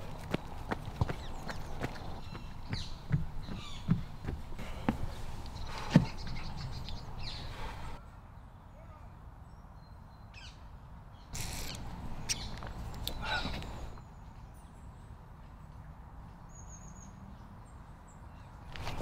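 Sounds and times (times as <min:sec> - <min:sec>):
birds calling: 0:00.0 - 0:14.7.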